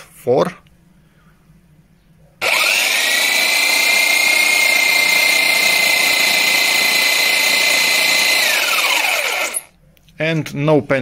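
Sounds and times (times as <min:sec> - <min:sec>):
jigsaw sawing through wood: 0:02.4 - 0:09.7.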